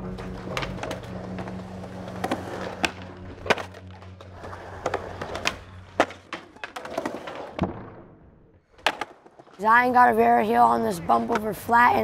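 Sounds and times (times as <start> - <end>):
skateboard clacks and pops: 0.0 - 8.1, 8.7 - 9.6
skateboard wheels rolling on concrete: 0.0 - 12.0.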